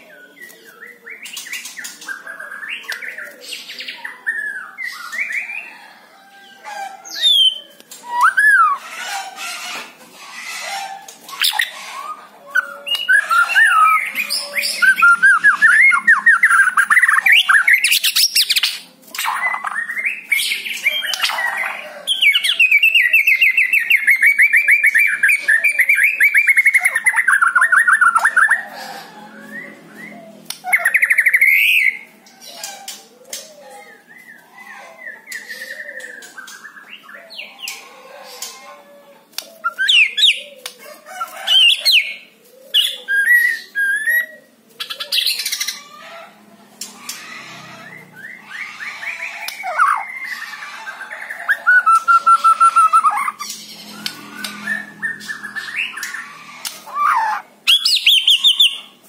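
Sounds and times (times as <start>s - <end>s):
bird singing whistles and trills: 57.7s - 58.8s.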